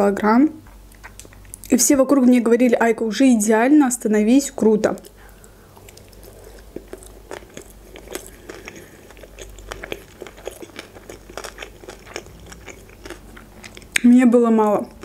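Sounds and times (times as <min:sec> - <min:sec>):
person chewing food: 0:00.9 - 0:01.7, 0:05.0 - 0:14.0.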